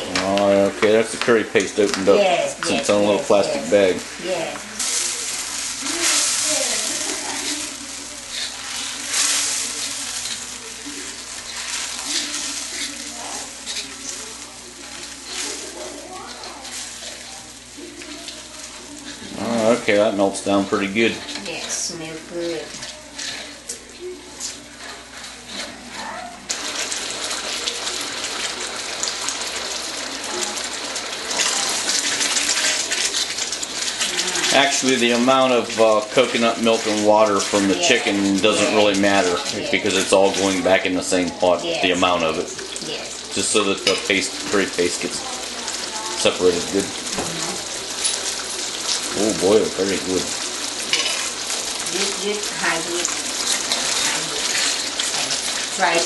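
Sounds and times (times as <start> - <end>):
coconut milk sizzling in a wok: 0.0 - 56.0
spoon stirring and scraping: 2.5 - 28.5, 50.3 - 52.2, 53.0 - 56.0.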